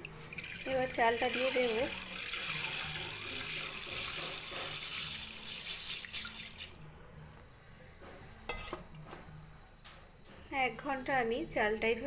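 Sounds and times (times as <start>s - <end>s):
rice pouring into water: 0.0s - 6.8s.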